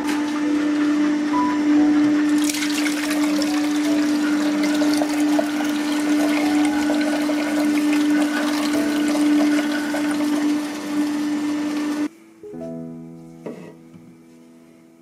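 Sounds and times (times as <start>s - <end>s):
juicer motor humming: 0.0s - 12.1s
juice splashing into jug: 2.3s - 10.9s.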